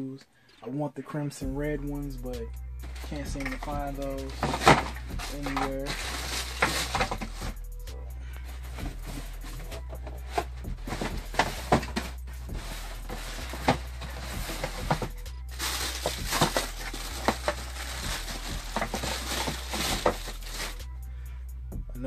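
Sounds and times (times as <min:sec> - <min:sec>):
tissue paper rustling: 0:02.8 - 0:07.6, 0:08.7 - 0:20.9.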